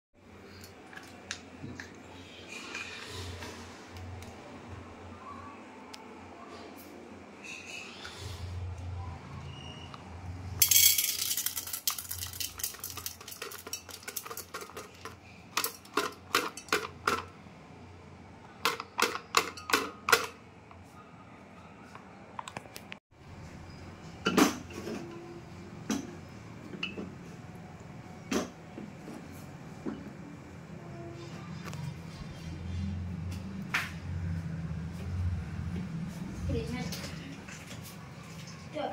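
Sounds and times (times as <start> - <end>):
popcorn kernels rattling into metal pan: 10.6 - 17.2.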